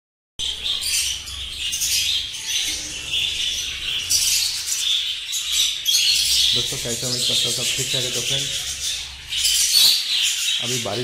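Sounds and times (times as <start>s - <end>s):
budgerigars chattering and chirping: 0.4s - 11.0s.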